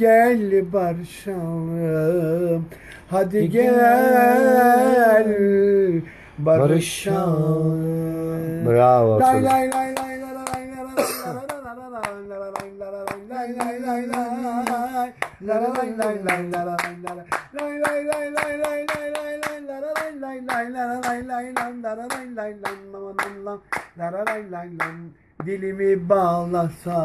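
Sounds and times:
hands clapping and snapping: 9.4 - 25.6.

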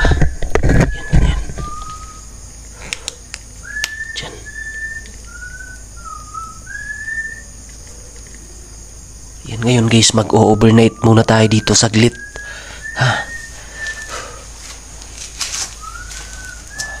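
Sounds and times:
faint clicks: 2.6 - 4.0
short whistled notes: 15.8 - 17.0.

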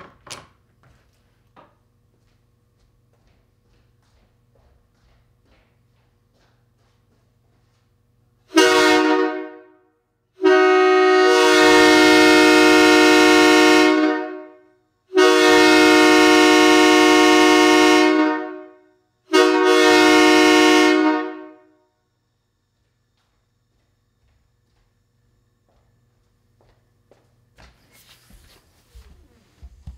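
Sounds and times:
train horn blasts: 8.4 - 22.0.

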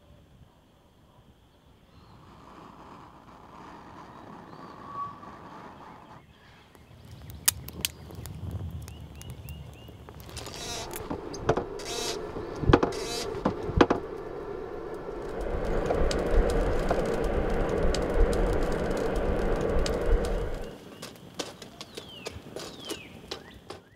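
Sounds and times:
fire crackling: 2.1 - 23.8
bellows rushing air: 10.4 - 20.8.

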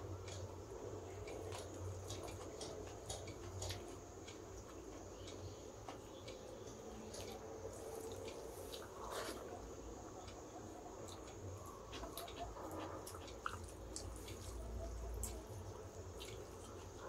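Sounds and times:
chewing with wet smacks: 1.3 - 4.0, 6.9 - 9.6, 11.0 - 17.0.

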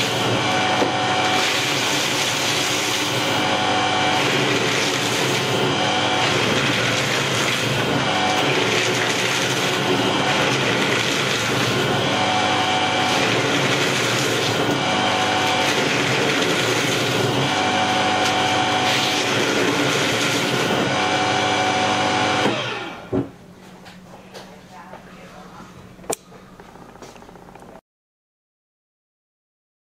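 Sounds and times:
paper shredder shredding paper: 0.0 - 23.3.

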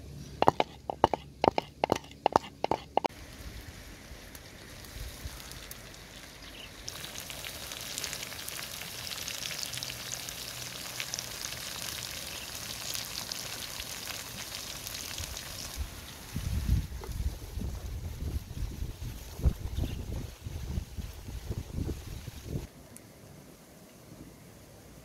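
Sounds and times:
fish frying in oil: 0.5 - 16.4.

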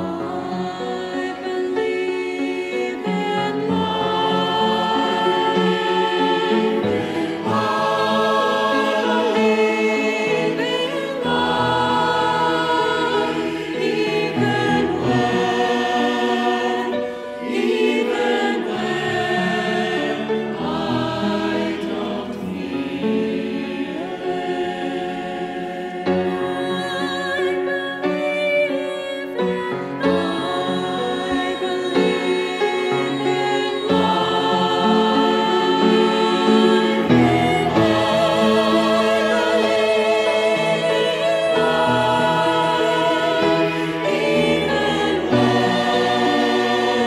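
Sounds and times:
mixed choir singing in parts: 0.0 - 47.0.

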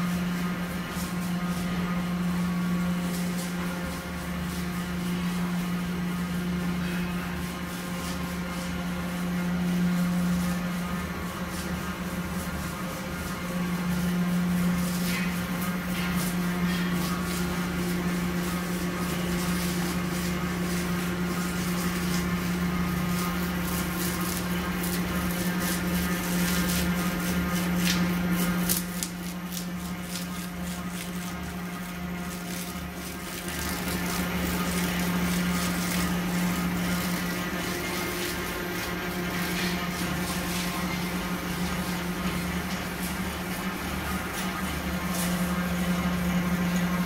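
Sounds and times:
motor hum: 0.0 - 47.0.

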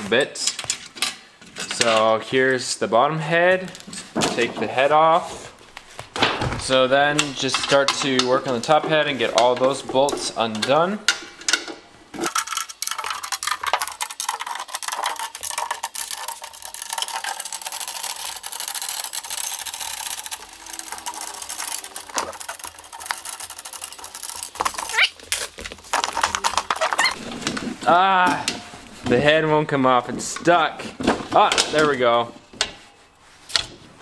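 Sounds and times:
metallic clicking and rattling: 7.0 - 27.2.

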